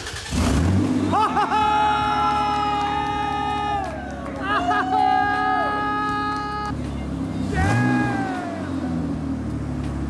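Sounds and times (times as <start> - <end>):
person whooping: 1.2 - 6.7, 7.5 - 8.7.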